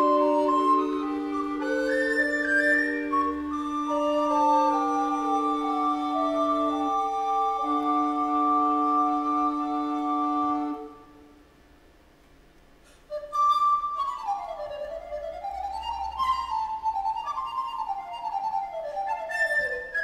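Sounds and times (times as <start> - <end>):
recorder quartet chord: 0.0 - 11.3.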